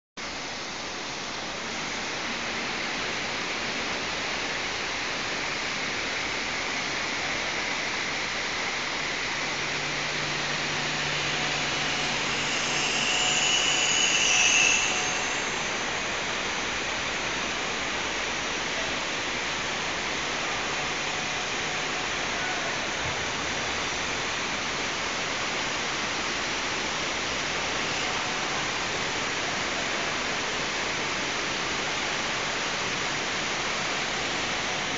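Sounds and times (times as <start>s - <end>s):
lathe cutting steel: 8.2s - 34.9s.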